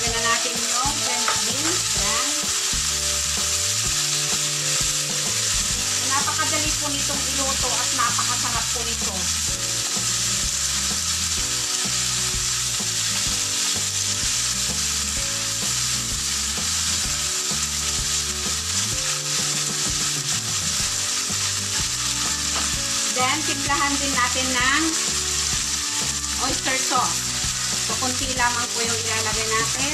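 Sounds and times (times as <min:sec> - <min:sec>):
food sizzling in oil: 0:00.0 - 0:29.9
spatula stirring in pan: 0:01.0 - 0:29.9.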